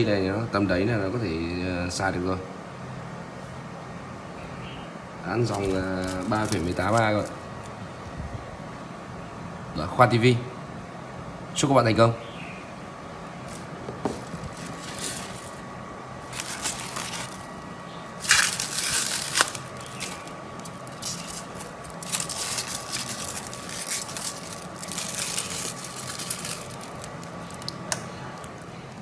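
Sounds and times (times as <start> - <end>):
faint steady whine: 0.0 - 29.0
rustling and scraping handling noise: 5.4 - 7.8, 13.4 - 27.7.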